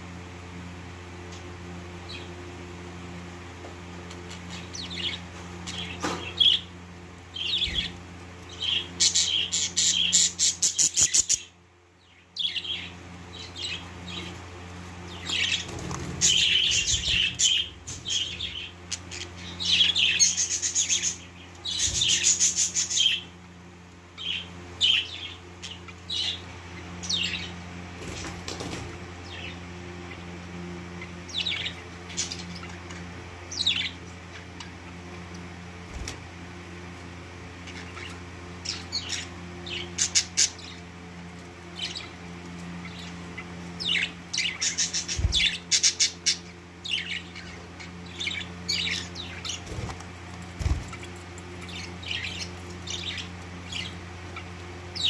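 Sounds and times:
bird chicks chirping and begging: 0.0 - 55.0.

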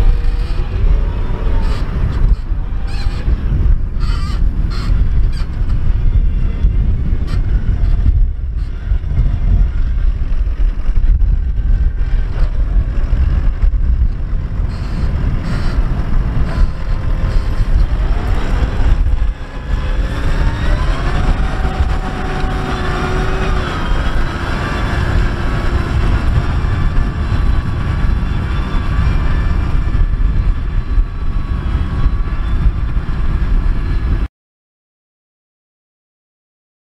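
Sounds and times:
tractor diesel engine under load: 5.6 - 34.2
rising whine: 8.2 - 34.3.

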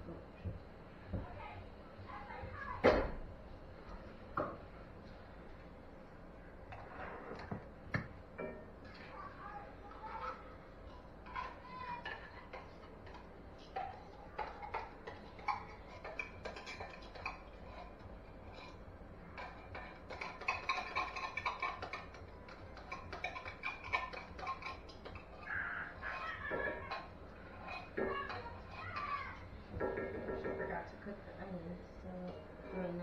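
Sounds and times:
seasoning container rattling: 11.2 - 25.5.

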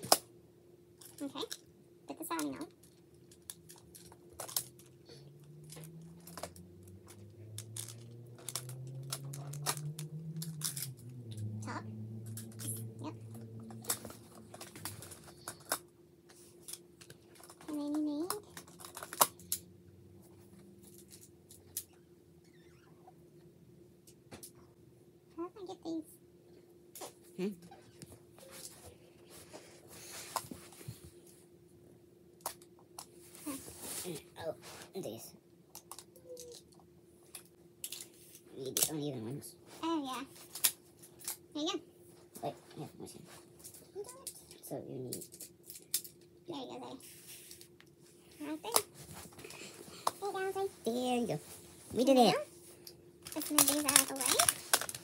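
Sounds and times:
faint steady hum: 0.0 - 55.0
plastic tiles clicking: 7.5 - 11.0.

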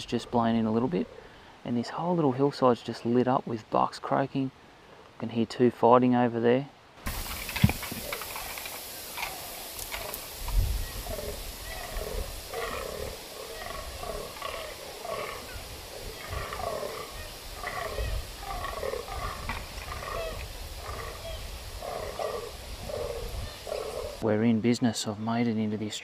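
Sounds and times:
deer bucks croaking: 7.1 - 24.2.

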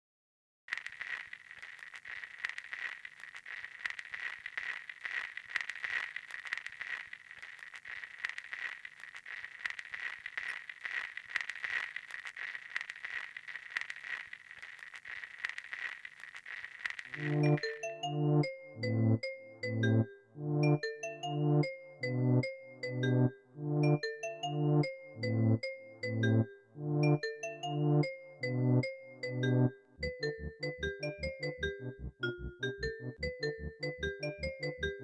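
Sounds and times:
crackling and fizzing: 0.7 - 19.0
chiming tuned-percussion music: 17.2 - 35.0.

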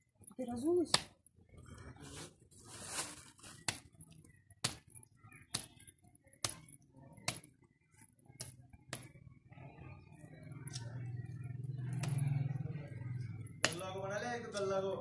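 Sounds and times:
hands slapping wet clay: 13.6 - 13.8.

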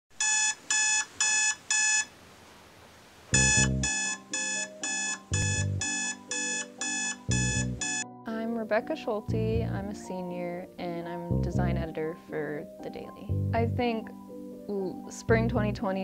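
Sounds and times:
phone alarm beeps: 0.2 - 2.1, 3.4 - 8.1
alarm music: 3.4 - 8.2.

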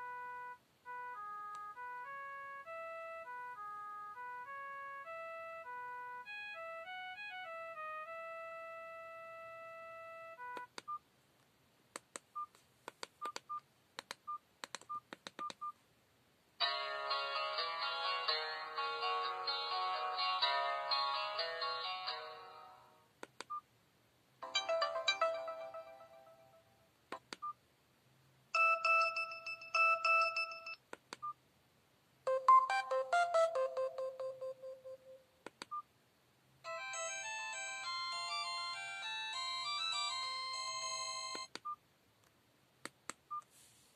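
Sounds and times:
keypad clicks: 12.0 - 15.7, 23.2 - 23.6
synthesized message tone melody: 24.4 - 26.6, 32.3 - 35.2
synthesized ringtone chord: 24.4 - 26.7, 28.6 - 30.8, 32.3 - 35.2, 36.7 - 41.5.

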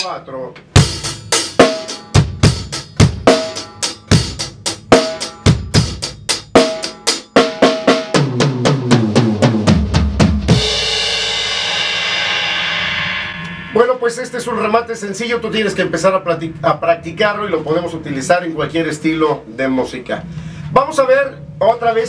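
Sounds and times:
drum kit ballad groove: 0.0 - 14.7
tom drum fill: 0.6 - 14.0
cymbal crash ringing: 10.5 - 14.8.

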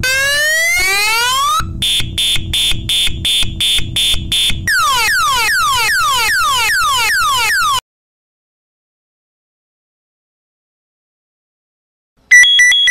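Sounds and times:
piezo siren cycling tones: 0.0 - 7.8, 12.3 - 12.9.

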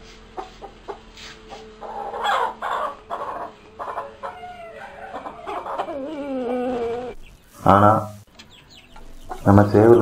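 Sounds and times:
chickens clucking: 0.0 - 7.5, 8.3 - 10.0
chickens squawking: 0.3 - 7.3.

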